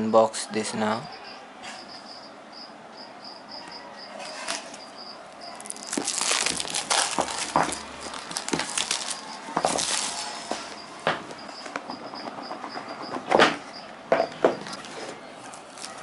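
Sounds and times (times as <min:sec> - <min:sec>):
cricket chirping: 0:01.0 - 0:14.5
plastic wrapping crinkling and tearing: 0:05.6 - 0:10.5, 0:14.8 - 0:16.0.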